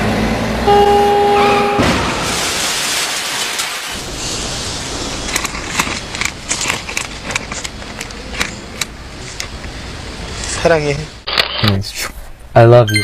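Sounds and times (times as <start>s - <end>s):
rushing burst of noise: 1.8s - 11.3s
sharp clicks and crackles: 5.2s - 9.8s.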